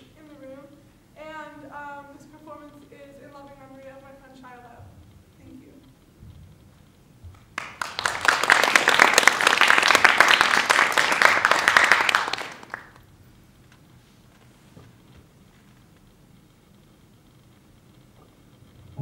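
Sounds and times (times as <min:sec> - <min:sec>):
audience applauding: 0:07.5 - 0:13.0.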